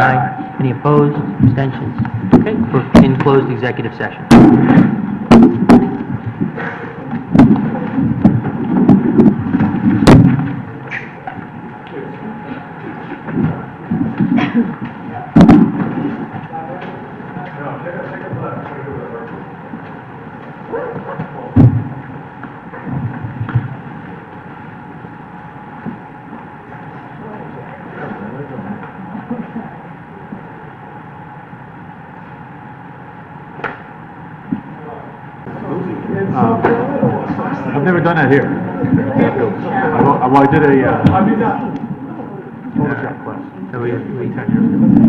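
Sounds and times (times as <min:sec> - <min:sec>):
faint indistinct voices: 0:00.0 - 0:22.1, 0:26.0 - 0:31.5, 0:34.6 - 0:45.0
microphone handling noise: 0:01.2 - 0:03.4, 0:04.2 - 0:11.5, 0:21.1 - 0:24.0
loud thumps: 0:04.3 - 0:10.7, 0:15.3 - 0:16.3, 0:21.6 - 0:22.0.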